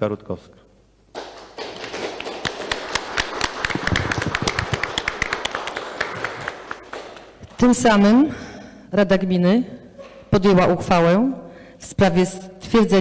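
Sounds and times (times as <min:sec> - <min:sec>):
people applauding: 0:01.2 - 0:07.7.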